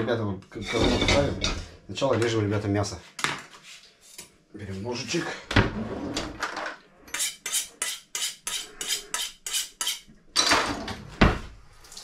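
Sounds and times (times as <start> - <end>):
knife sharpening strokes: 7.1 - 10.1.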